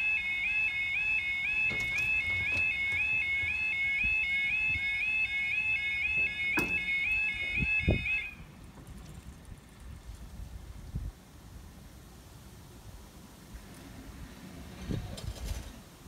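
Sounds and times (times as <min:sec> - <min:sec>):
level crossing alarm warbling: 0:00.0 - 0:08.5
barrier knocks: 0:01.6 - 0:04.2.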